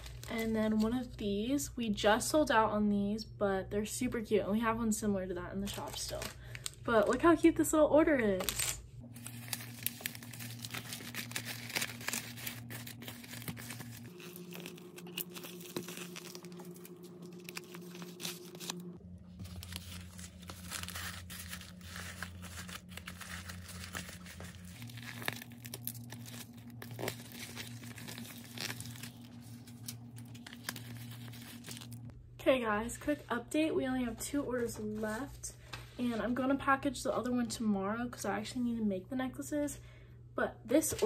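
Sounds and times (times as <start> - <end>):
plastic packaging crinkling: 0.0 - 0.8, 5.6 - 7.3, 8.3 - 32.1.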